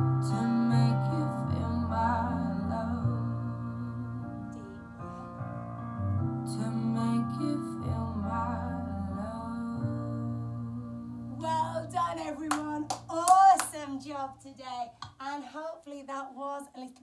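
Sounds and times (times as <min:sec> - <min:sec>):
person singing: 0:00.0 - 0:04.9, 0:06.5 - 0:11.8
piano or keyboard: 0:00.0 - 0:13.5.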